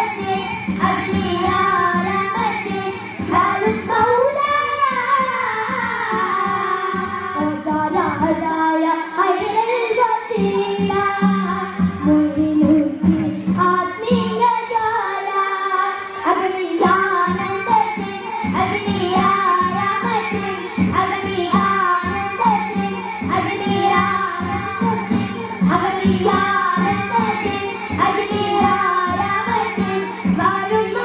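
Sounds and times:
steady beat: 0:00.0 - 0:08.4, 0:16.8 - 0:31.0
children singing into microphones: 0:00.0 - 0:31.0.

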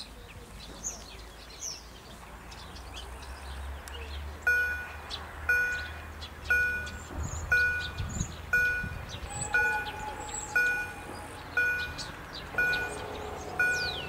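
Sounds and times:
birds chirping: 0:00.0 - 0:14.0
crossing warning bell ringing: 0:04.5 - 0:14.0.

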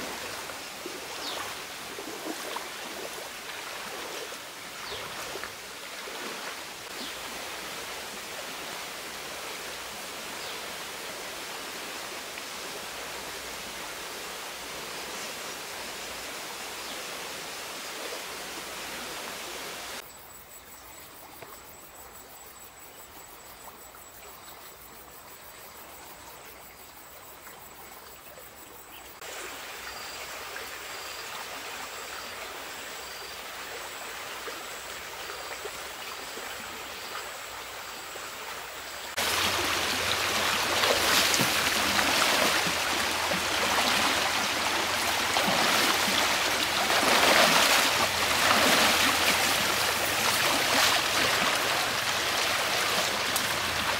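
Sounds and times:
stream rushing over rocks: 0:00.0 - 0:20.0, 0:33.5 - 0:53.9
splashing footsteps in water: 0:39.2 - 0:53.9.

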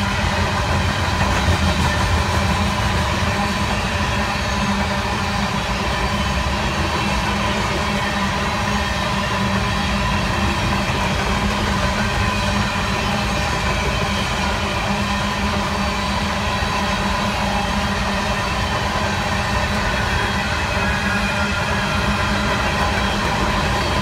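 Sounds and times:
train wheels rumbling on rails: 0:00.0 - 0:24.0.

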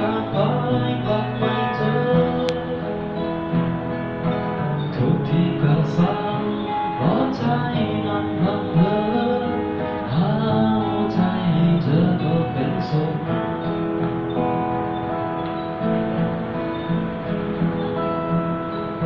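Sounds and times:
man singing a slow ballad: 0:00.0 - 0:03.6, 0:04.8 - 0:13.6
acoustic guitar strumming: 0:00.0 - 0:19.0.

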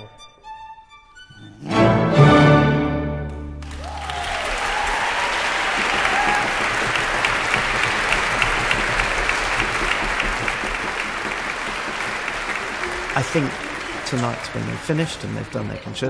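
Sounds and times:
audience applauding: 0:03.3 - 0:16.0.

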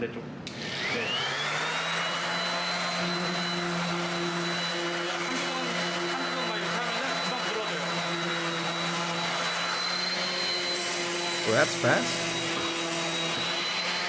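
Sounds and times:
orbital sander on wood: 0:00.6 - 0:14.0.

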